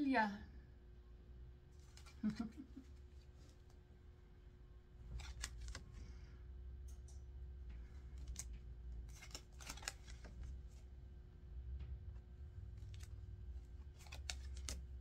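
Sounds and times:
faint steady hum: 0.0 - 15.0
cards clicking and sliding: 1.8 - 3.8, 5.0 - 6.2, 7.7 - 10.9, 12.6 - 15.0.

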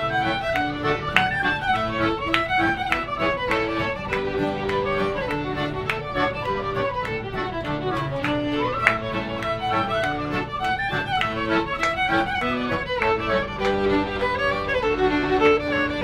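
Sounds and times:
accordion: 0.0 - 16.0
fiddle playing quick runs: 0.0 - 16.0.

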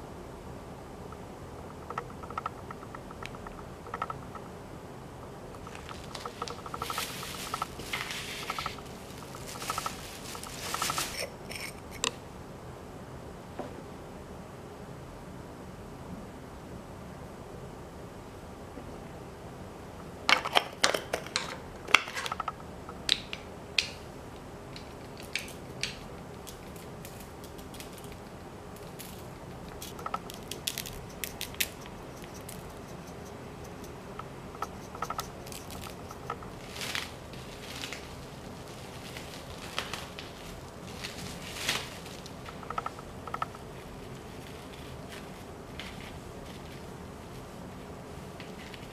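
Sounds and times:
shaker clicking and tapping: 1.1 - 4.6, 5.2 - 12.1, 20.3 - 24.0, 24.7 - 37.1, 42.2 - 43.6
plastic cling wrap crinkling: 5.6 - 12.0, 24.8 - 33.0, 34.6 - 42.8.

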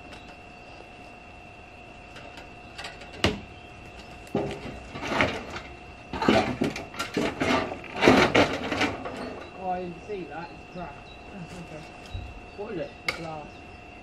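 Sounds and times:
objects clattering and scraping: 4.0 - 9.7.

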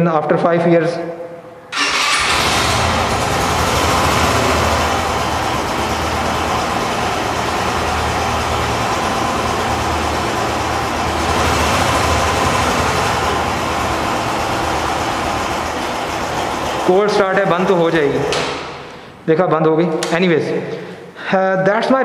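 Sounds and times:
motorcycle engine idling: 1.8 - 18.8.

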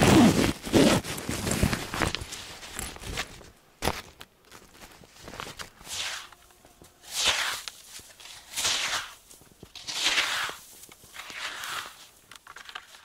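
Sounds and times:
footsteps in deep snow: 0.0 - 13.0.

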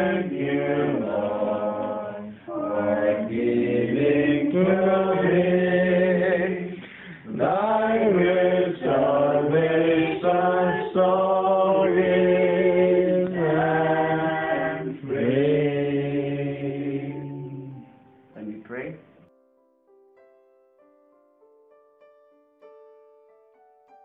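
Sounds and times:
voices singing unaccompanied: 0.0 - 18.0.

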